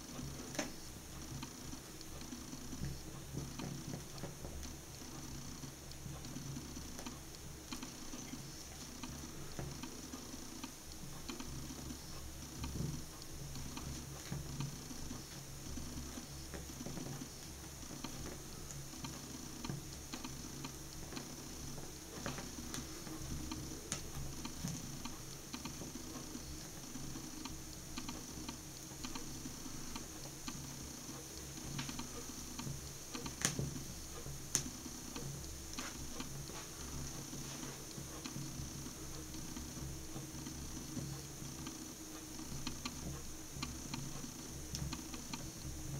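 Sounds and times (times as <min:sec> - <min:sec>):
small pops: 0:00.1 - 0:45.9
burning shoe crackling: 0:29.6 - 0:41.0.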